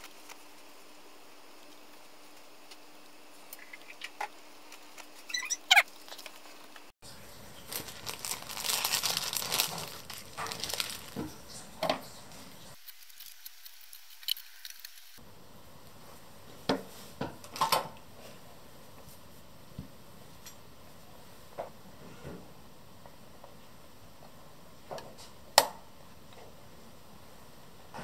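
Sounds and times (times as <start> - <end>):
paper rustling and crinkling: 5.9 - 13.4.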